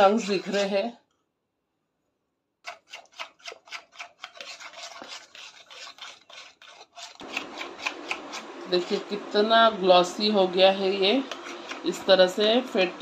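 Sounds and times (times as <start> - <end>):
spoon scraping metal bowl: 0.0 - 1.0, 2.6 - 9.5, 10.6 - 13.0.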